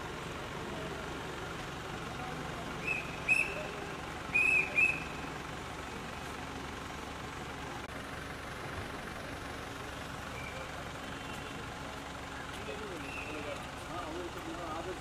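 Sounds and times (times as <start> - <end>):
distant traffic: 0.0 - 15.0.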